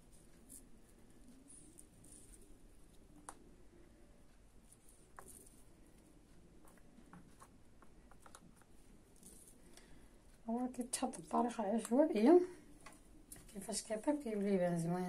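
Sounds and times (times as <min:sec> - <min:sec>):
light clicks and taps on metal tins: 0:10.9 - 0:12.2.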